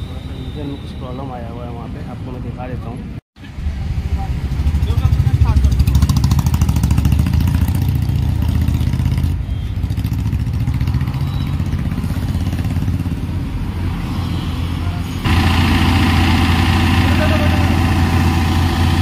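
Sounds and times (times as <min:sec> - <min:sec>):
diesel engine idling: 0:15.2 - 0:19.0.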